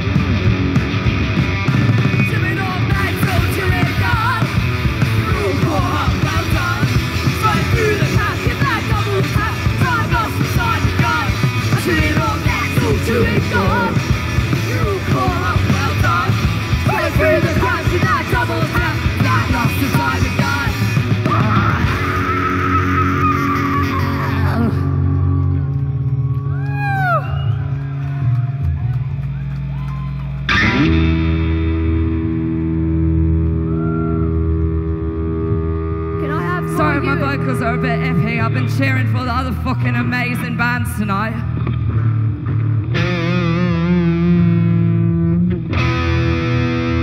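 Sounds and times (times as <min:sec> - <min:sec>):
drum kit: 0:00.0 - 0:24.7
bass guitar: 0:00.0 - 0:47.0
electric guitar: 0:00.0 - 0:47.0.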